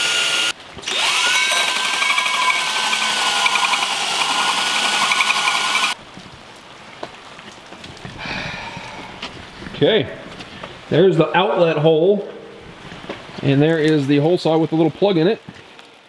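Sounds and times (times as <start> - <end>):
power drill with hole saw cutting: 0.0 - 6.0.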